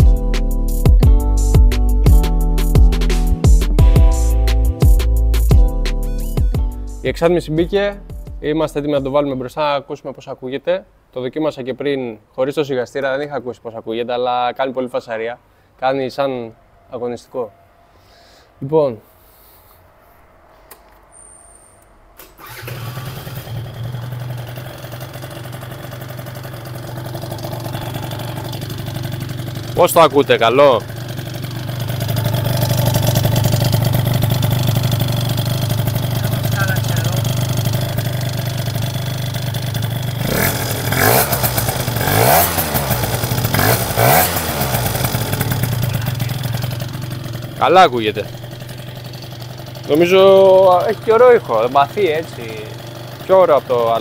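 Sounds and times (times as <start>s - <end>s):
scooter engine starting and idling: 22.2s - 54.0s.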